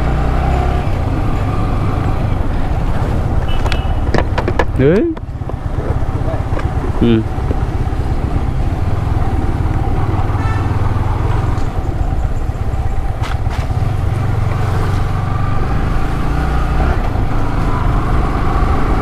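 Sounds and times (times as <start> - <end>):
motorcycle engine running: 0.0 - 16.4
road and wind noise: 0.0 - 19.0
person speaking: 4.7 - 5.3, 6.1 - 7.4.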